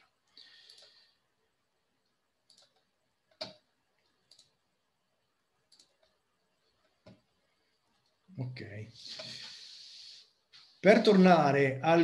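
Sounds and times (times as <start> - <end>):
computer mouse clicks: 0.6 - 1.0, 2.0 - 4.6, 5.7 - 7.3.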